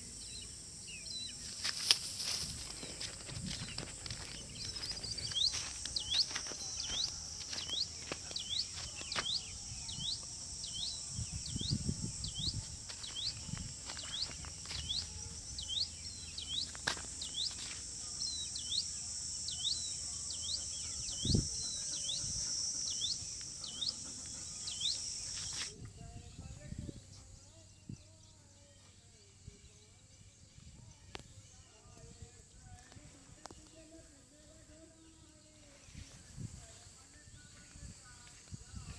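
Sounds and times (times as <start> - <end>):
high-pitched insect drone: 0.0 - 25.8.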